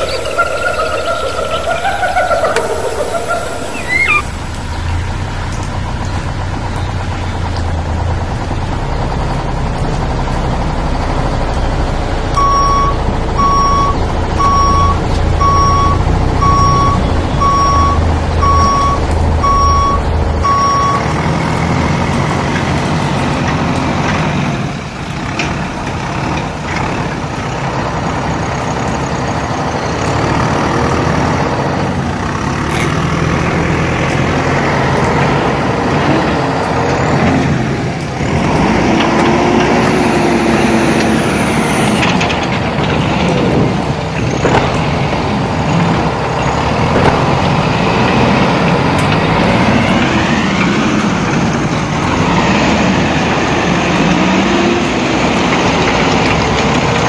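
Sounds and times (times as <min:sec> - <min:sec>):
reversing alarm beeping: 0:00.0 - 0:04.3, 0:12.4 - 0:21.2
truck engine rumbling: 0:00.0 - 0:57.0.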